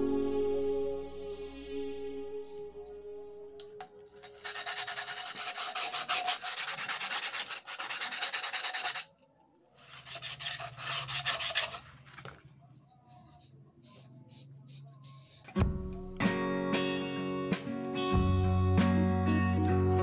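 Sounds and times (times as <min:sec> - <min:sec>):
cloth scrubbing a cylinder: 0:04.2 - 0:09.1, 0:09.8 - 0:15.5.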